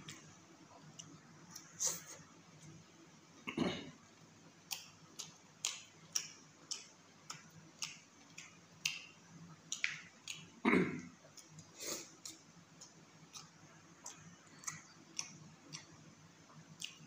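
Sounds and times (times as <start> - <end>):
wet chewing smacks: 11.3 - 16.0.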